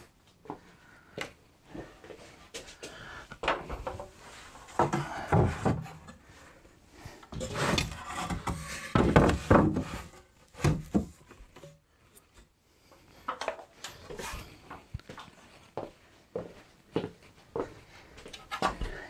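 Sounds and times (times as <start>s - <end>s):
timber scraping and knocking: 3.5s - 6.3s, 7.3s - 11.7s.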